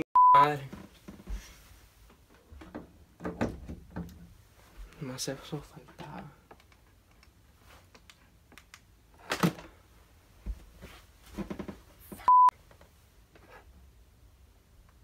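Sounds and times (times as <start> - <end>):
censor beep: 0.0 - 0.5, 12.3 - 12.5.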